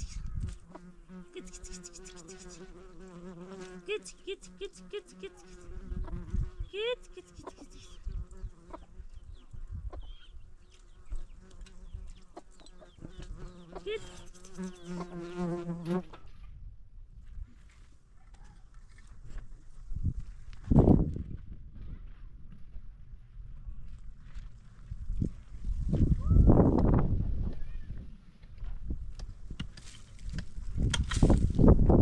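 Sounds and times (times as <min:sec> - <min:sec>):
flying insect buzzing: 0:00.0 - 0:09.2, 0:10.9 - 0:16.1.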